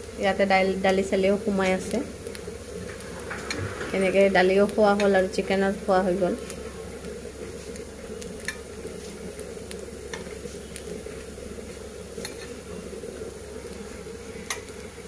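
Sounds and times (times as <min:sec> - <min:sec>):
patties sizzling in oil: 0:00.0 - 0:15.0
spatula clicking against pan: 0:12.2 - 0:12.5, 0:14.5 - 0:14.7.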